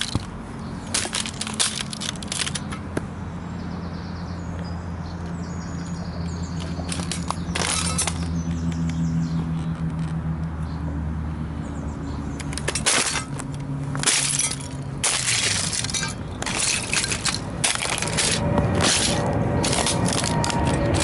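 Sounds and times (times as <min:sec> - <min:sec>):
model car crunching underfoot: 0:00.0 - 0:03.0, 0:06.6 - 0:08.4, 0:12.5 - 0:21.0
steady low hum: 0:13.0 - 0:21.0.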